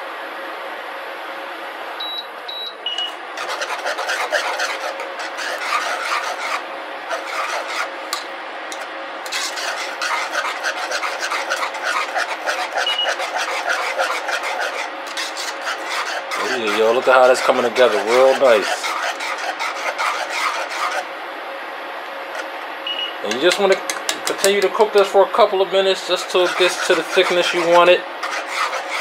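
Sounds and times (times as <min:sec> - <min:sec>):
wire whisk scraping metal saucepan: 0:03.0 - 0:21.0, 0:23.3 - 0:25.1, 0:26.0 - 0:29.0
short high beeps: 0:22.9 - 0:23.2.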